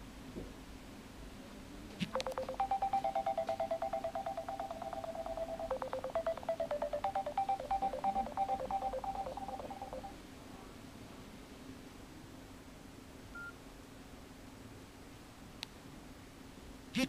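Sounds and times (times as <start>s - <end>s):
phone electronic beep melody: 2.1s - 10.1s.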